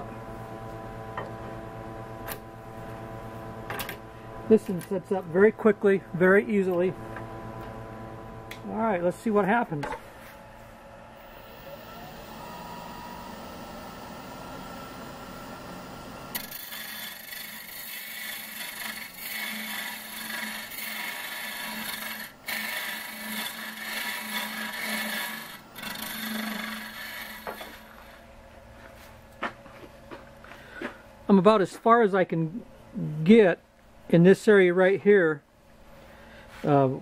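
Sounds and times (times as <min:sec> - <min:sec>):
lathe running: 0:01.2 - 0:28.3
hollowing tool cutting wood: 0:11.2 - 0:28.3.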